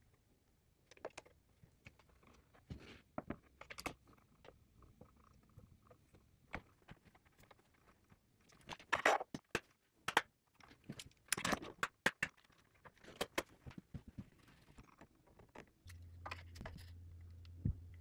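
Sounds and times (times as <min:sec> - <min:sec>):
steady low hum: 0:15.9 - 0:18.0.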